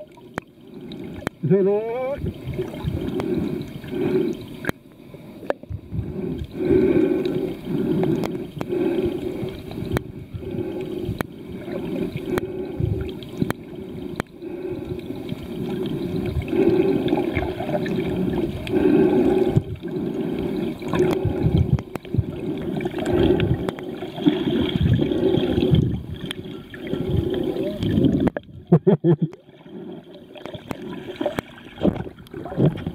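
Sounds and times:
muffled underwater gurgling rush: 0.0s - 32.9s
faint clicks: 8.0s - 8.8s, 9.5s - 10.1s, 10.8s - 11.4s, 13.2s - 14.4s, 20.8s - 22.2s.

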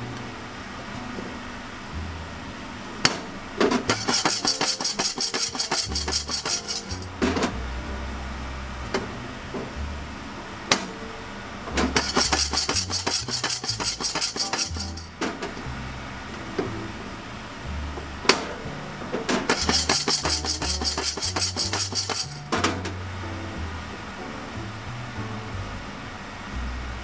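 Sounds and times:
coffee beans rattling in saucepan: 3.9s - 7.1s, 12.0s - 15.1s, 19.5s - 22.5s
sharp clicks of cracking beans: 3.9s - 7.1s, 12.0s - 15.1s, 19.5s - 22.5s.

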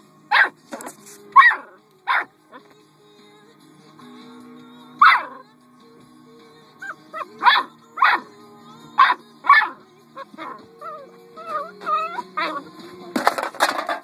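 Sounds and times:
puppy barking: 0.3s - 0.6s, 1.4s - 2.3s, 5.0s - 5.4s, 6.8s - 8.3s, 9.0s - 12.7s
puppy yipping: 0.3s - 0.6s, 1.4s - 2.3s, 5.0s - 5.4s, 6.8s - 8.3s, 9.0s - 12.6s.

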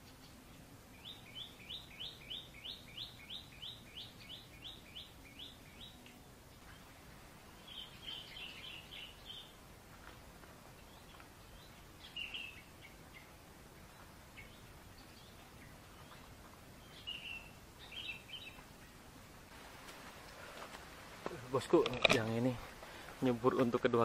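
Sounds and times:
bird chirping: 0.0s - 9.6s, 10.8s - 19.0s
faint outdoor background noise: 0.0s - 24.0s.

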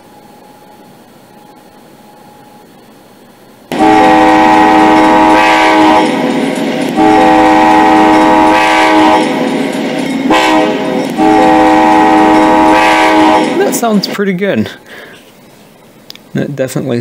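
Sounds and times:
train rumble: 0.0s - 17.0s
locomotive air horn blasts: 3.7s - 9.6s, 10.2s - 13.7s.

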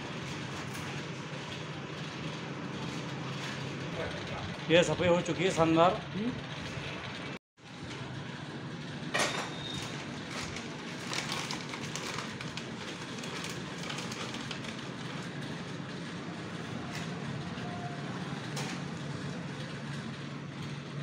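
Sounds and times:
workshop hum: 0.0s - 21.0s
plastic packaging crinkling: 10.2s - 15.1s.

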